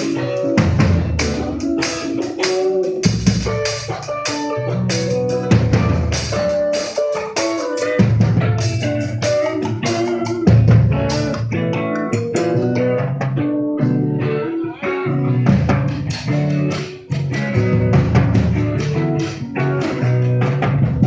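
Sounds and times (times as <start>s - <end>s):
timbales and congas: 0.0s - 13.3s
electric bass: 0.0s - 21.0s
electric guitar: 0.0s - 21.0s.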